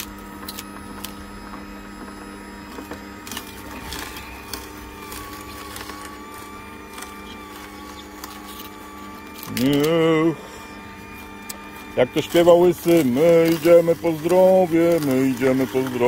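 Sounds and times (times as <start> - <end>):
juicer motor hum: 0.0 - 16.0.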